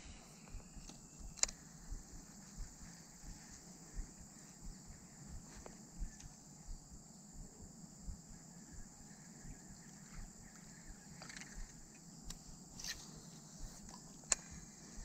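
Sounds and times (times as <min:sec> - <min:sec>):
fishing reel click: 0:01.3 - 0:01.6.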